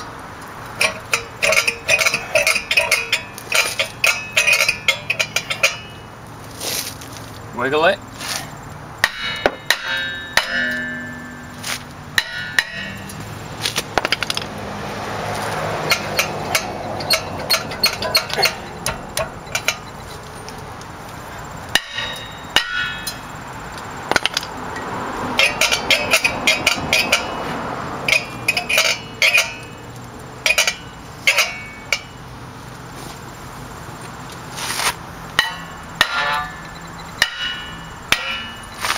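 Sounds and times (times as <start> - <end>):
hammer striking metal rotor: 0.8 - 6.1, 9.0 - 13.3, 15.8 - 20.1, 21.7 - 23.4, 24.1 - 32.2, 35.4 - 38.9.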